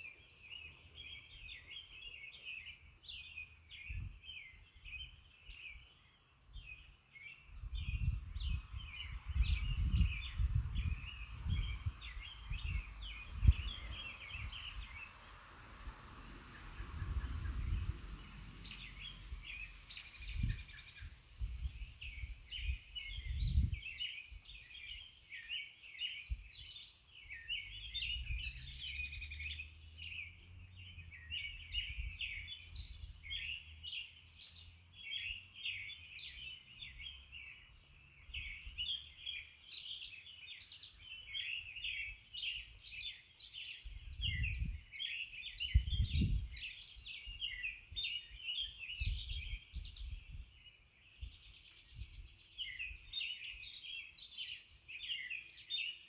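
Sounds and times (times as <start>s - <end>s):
birds chirping: 0.0s - 56.0s.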